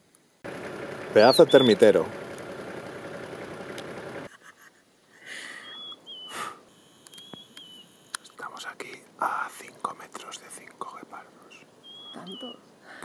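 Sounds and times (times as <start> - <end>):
vehicle engine idling: 0.4 - 4.3
bird wavering high notes: 1.2 - 2.1.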